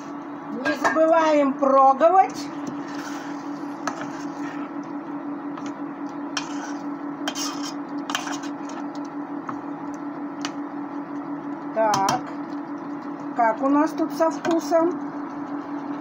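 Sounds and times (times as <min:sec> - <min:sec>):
steady hum: 0:00.0 - 0:16.0
spoon scraping and clinking pot: 0:06.4 - 0:08.8.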